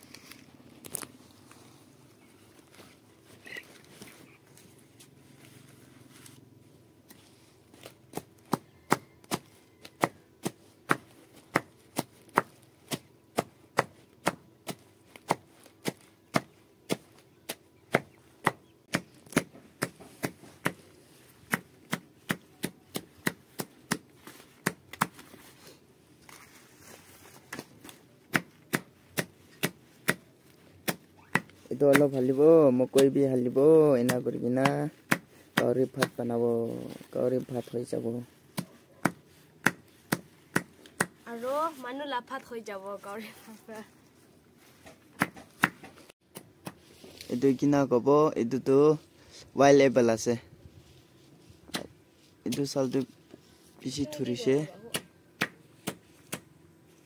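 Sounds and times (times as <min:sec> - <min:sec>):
machete chopping stalks on wood: 0:07.7 - 0:25.4, 0:27.4 - 0:33.2, 0:33.9 - 0:36.4, 0:38.5 - 0:41.2, 0:44.8 - 0:46.9, 0:51.7 - 0:51.9, 0:54.8 - 0:56.5.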